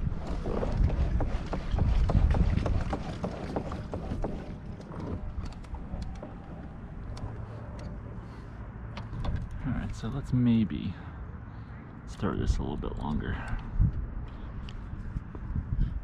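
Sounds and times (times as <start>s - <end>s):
wind buffeting microphone: 0.0s - 8.2s, 12.2s - 16.0s.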